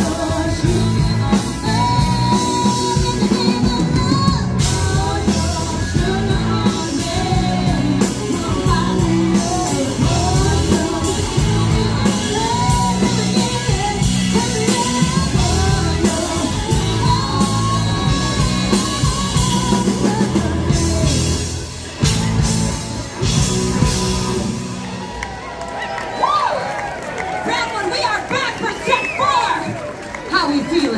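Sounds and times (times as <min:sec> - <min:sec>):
women singing: 0:00.0 - 0:21.5
drum kit: 0:00.0 - 0:25.4
electric guitars: 0:00.0 - 0:27.4.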